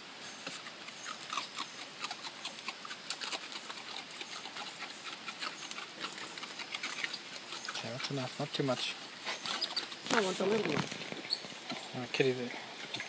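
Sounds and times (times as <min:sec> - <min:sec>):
animals chirping and squeaking: 0:00.2 - 0:13.0.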